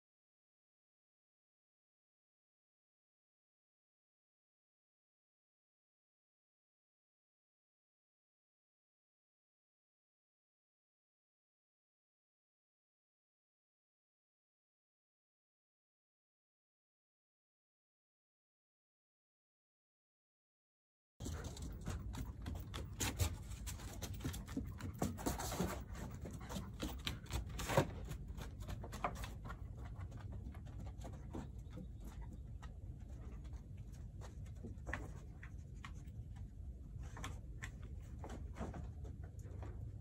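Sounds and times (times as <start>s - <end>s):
dog claws tapping on wooden deck: 21.2s - 33.4s.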